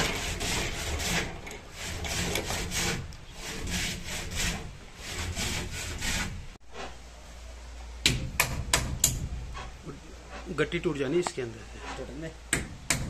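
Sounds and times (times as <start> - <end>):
rasping strokes on wood: 0.0 - 7.0.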